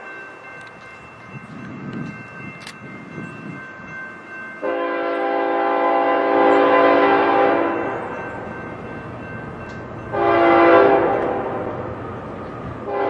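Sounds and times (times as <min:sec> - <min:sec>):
low rumble of train: 0:00.0 - 0:13.0
locomotive horn blast: 0:04.6 - 0:08.0, 0:10.1 - 0:11.9.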